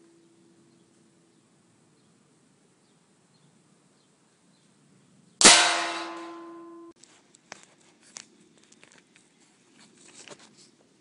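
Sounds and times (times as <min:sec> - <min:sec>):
metallic ringing from air-gun shot: 0:05.4 - 0:07.0
faint clicks and scuffs: 0:07.0 - 0:11.0.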